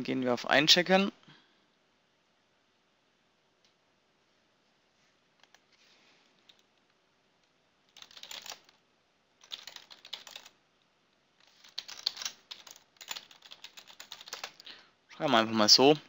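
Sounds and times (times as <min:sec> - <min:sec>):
computer keyboard typing: 0:07.9 - 0:08.8, 0:09.4 - 0:10.6, 0:11.4 - 0:14.7.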